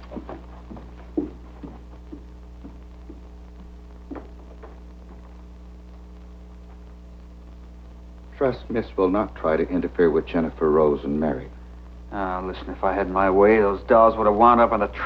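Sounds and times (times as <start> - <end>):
footsteps on wooden stairs: 0.0 - 5.3
low hum: 0.0 - 15.0.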